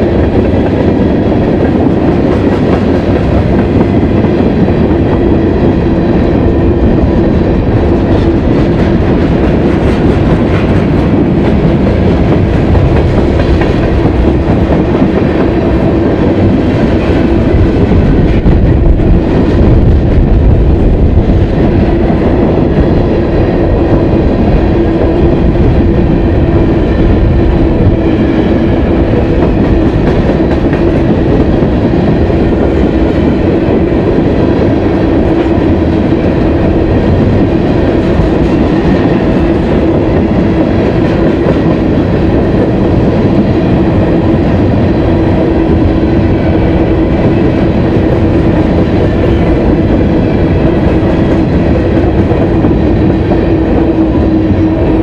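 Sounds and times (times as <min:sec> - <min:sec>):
freight train rolling past: 0:00.0 - 0:55.0.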